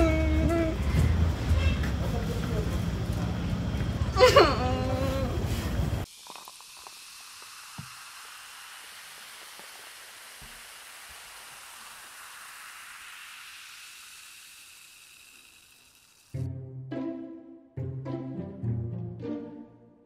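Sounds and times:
music: 0.0 - 2.2, 16.4 - 20.0
beer fizzing in a glass: 6.0 - 16.4.

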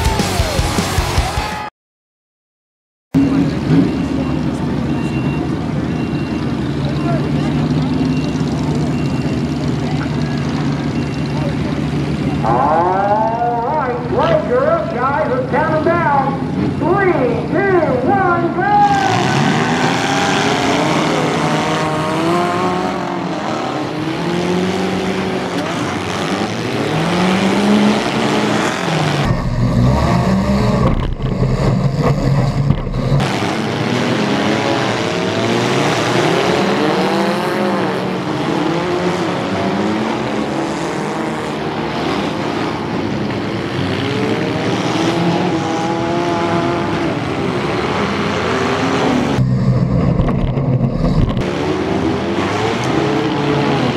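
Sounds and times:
car engines revving: 0.0 - 1.7, 3.2 - 53.9
heavy low rumble: 29.2 - 33.2, 49.4 - 51.5.

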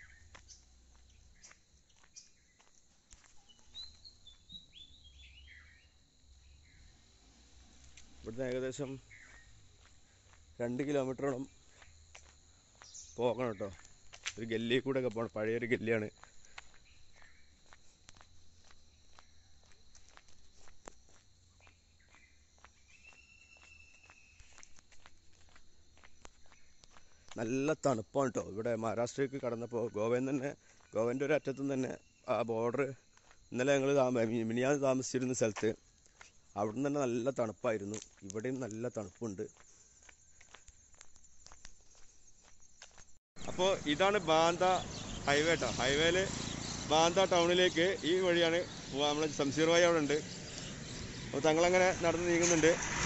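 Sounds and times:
footsteps on dirt: 0.0 - 5.3, 7.2 - 27.5, 33.0 - 33.6, 35.6 - 36.8, 37.8 - 47.4
birds chirping and whistling: 3.4 - 7.0, 8.8 - 9.6, 22.8 - 24.6, 43.4 - 53.0.

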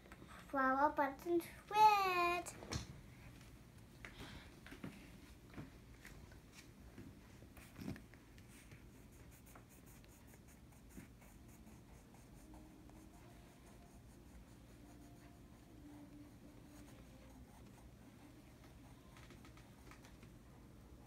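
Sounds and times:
pencil scratching on paper: 8.5 - 19.2.

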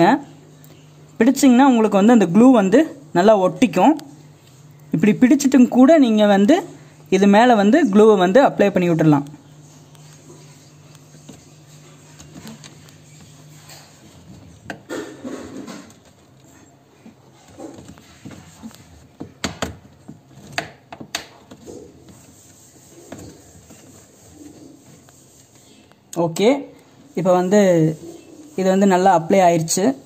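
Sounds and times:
plastic hose rubbing and creaking: 9.8 - 25.7.

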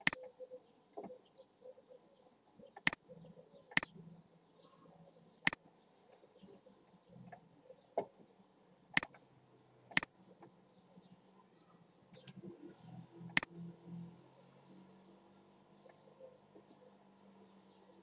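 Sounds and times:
computer mouse clicking: 0.0 - 0.2.

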